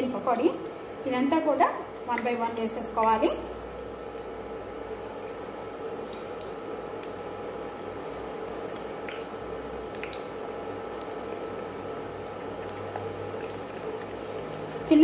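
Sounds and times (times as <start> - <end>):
chicken sizzling in deep-frying oil: 3.9 - 15.0.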